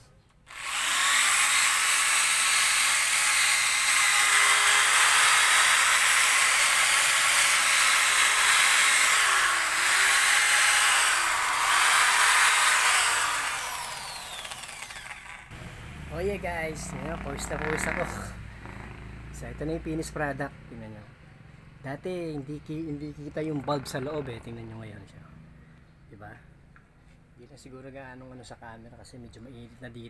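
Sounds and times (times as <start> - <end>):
electric polisher buffing plastic: 0.5 - 15.5.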